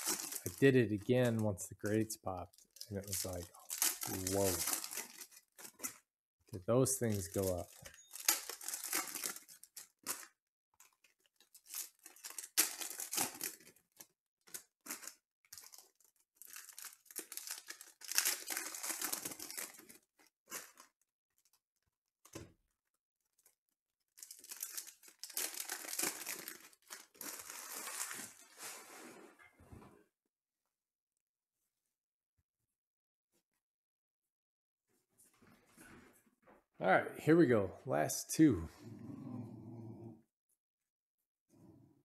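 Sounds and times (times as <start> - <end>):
foil wrapper crinkling and tearing: 0.0 - 1.3, 2.5 - 6.0, 6.7 - 21.9, 23.2 - 28.7
cards rustling: 0.0 - 2.0, 2.8 - 6.0, 6.6 - 10.3, 24.2 - 28.4.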